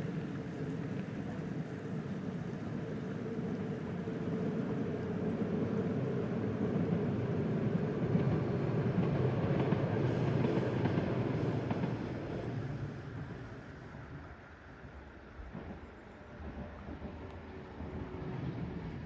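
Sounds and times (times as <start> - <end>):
train wheels rumbling on rail: 0.0 - 19.0.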